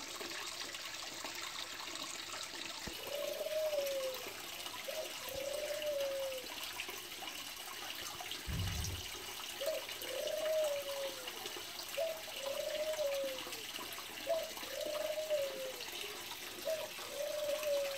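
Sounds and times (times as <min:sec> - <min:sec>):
small waterfall trickling: 0:00.0 - 0:17.9
dove cooing: 0:02.9 - 0:06.6, 0:08.5 - 0:17.9.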